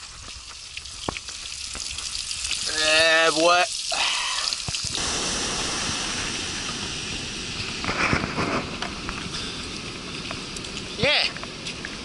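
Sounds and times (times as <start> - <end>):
food sizzling and crackling: 0.0 - 11.1
wind: 0.0 - 12.0
ocean surf breaking: 5.0 - 12.0.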